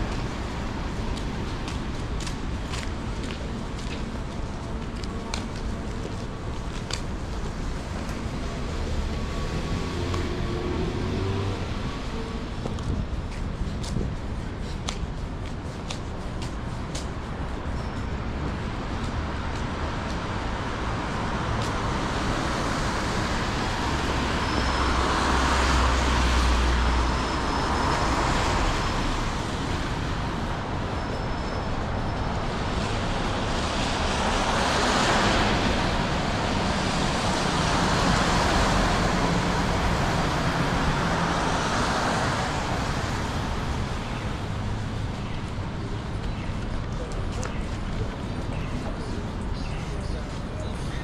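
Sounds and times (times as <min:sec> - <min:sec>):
hum of traffic: 0:00.0 - 0:51.0
vehicles passing: 0:00.0 - 0:51.0.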